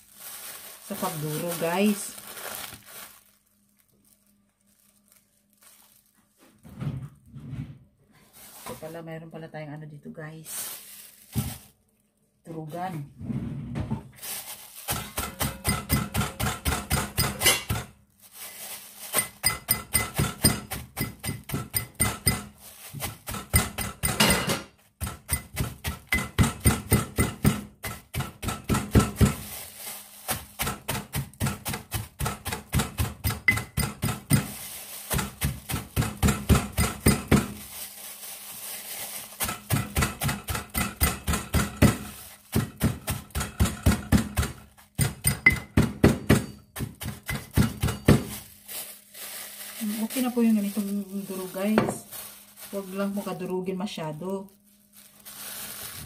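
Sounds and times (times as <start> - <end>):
pestle pounding in ceramic bowl: 14.9 - 17.9, 19.1 - 29.4, 30.3 - 37.6, 39.4 - 48.4.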